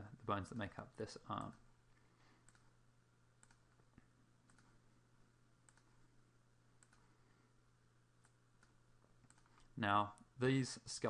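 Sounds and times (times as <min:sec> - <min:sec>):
low steady hum: 0:00.0 - 0:11.0
faint computer mouse clicks: 0:02.4 - 0:02.7, 0:03.4 - 0:04.7, 0:05.6 - 0:06.0, 0:06.8 - 0:07.1, 0:08.2 - 0:09.7.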